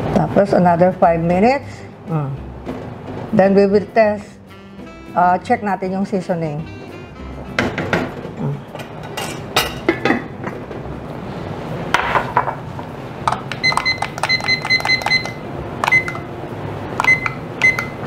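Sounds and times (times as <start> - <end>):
pot lid and pan clattering: 7.6 - 10.6
short electronic beeps: 13.6 - 16.2, 17.0 - 18.0.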